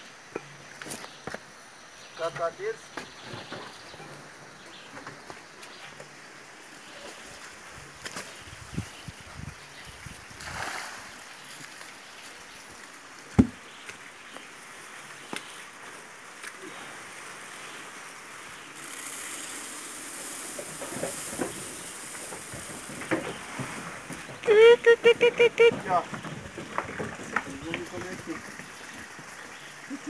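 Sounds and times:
grain running hiss: 9.8s - 26.1s
thump: 13.4s - 13.6s.

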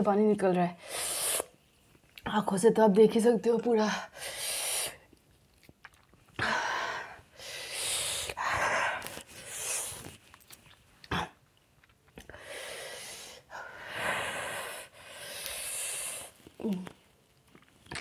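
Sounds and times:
woman breathing hard: 6.4s - 9.8s, 12.3s - 16.3s.

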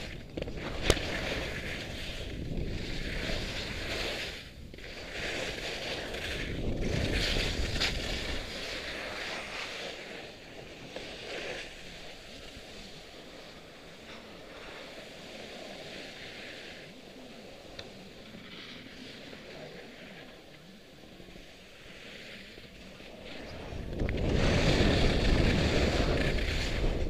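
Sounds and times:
wind on microphone: 0.0s - 9.6s, 23.0s - 27.0s
skis scraping on snow: 0.0s - 27.0s.

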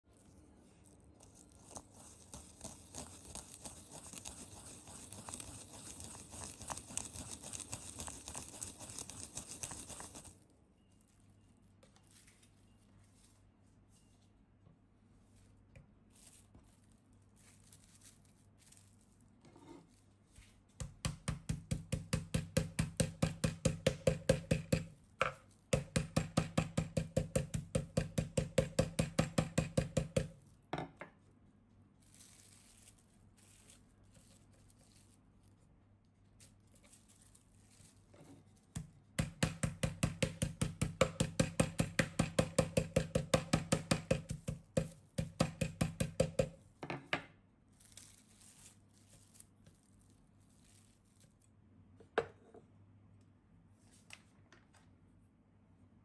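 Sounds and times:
rolling pin pounding meat: 20.8s - 30.4s, 38.8s - 46.6s.

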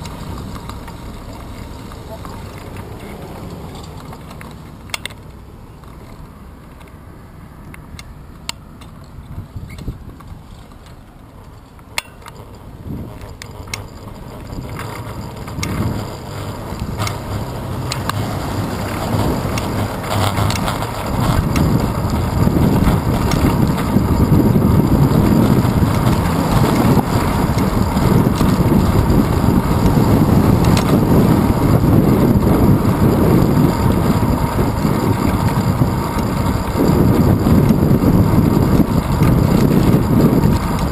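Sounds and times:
road rumble: 0.0s - 40.9s
sharp clicks: 2.4s - 7.0s
wind rushing over microphone: 9.1s - 10.6s, 12.7s - 13.4s, 14.0s - 40.9s.

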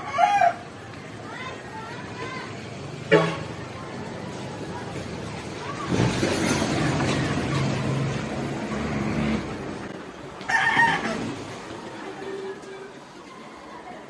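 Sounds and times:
rooster crowing: 0.0s - 0.6s, 10.5s - 11.4s
passing vehicle engine hum: 0.0s - 14.0s.

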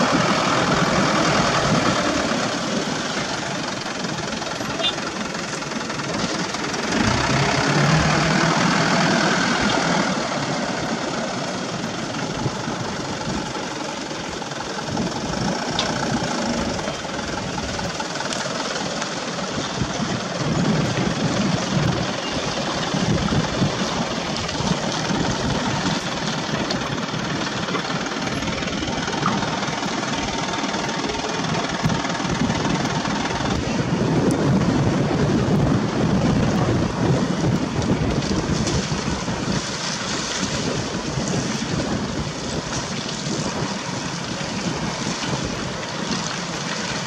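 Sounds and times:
diesel truck engine labouring: 0.0s - 47.0s.

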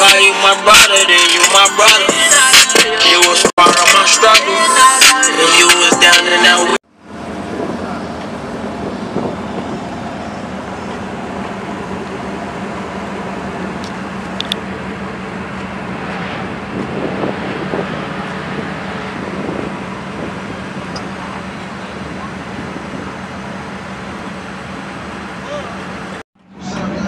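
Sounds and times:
low vehicle hum: 5.4s - 27.0s.

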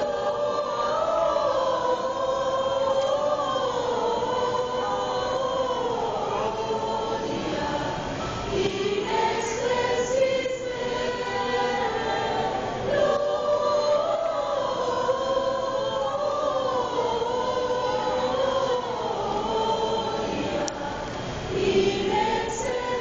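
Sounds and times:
mixed choir singing long notes: 0.0s - 23.0s.

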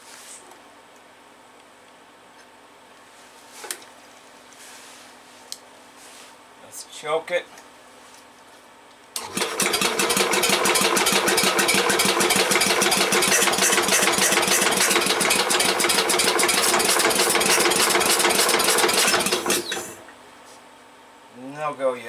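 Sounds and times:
engine cranking without firing: 9.2s - 20.0s
starter motor hum: 9.2s - 20.1s.

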